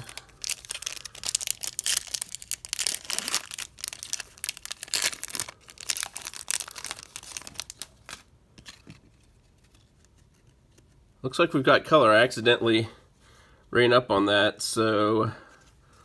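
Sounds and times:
foil wrapper tearing and crinkling: 0:00.0 - 0:08.3.

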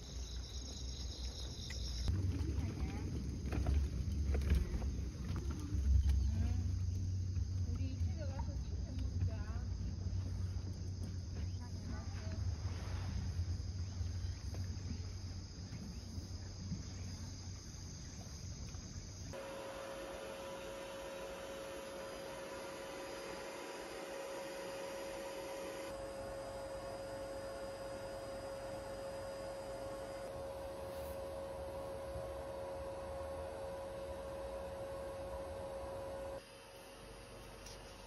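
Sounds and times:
insects chirring: 0:00.0 - 0:38.0
steady hum with held tone: 0:18.6 - 0:38.0.

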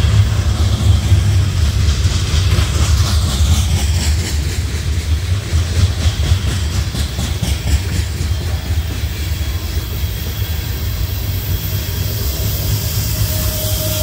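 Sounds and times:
freight train rumbling past: 0:00.0 - 0:14.0
wheels clicking over rail joints: 0:00.0 - 0:14.0.

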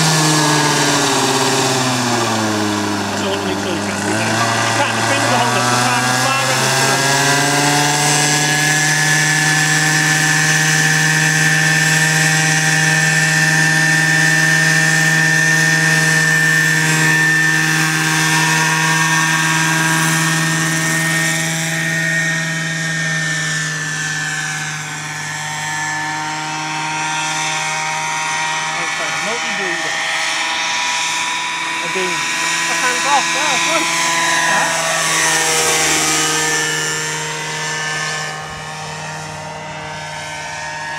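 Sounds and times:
model helicopter engine and rotor: 0:00.0 - 0:40.9.

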